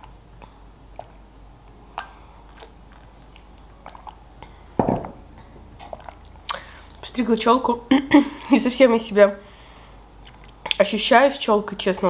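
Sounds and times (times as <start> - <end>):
small mouth clicks: 1.9 - 4.5, 5.8 - 6.7.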